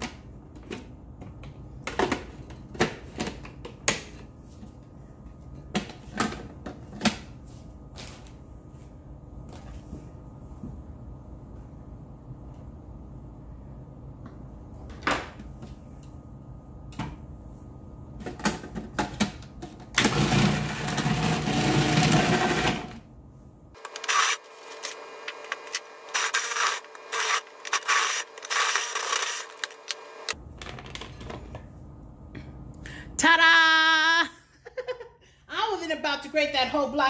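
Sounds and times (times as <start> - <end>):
food processor shredding cheese: 20.0 - 23.0, 23.8 - 30.4.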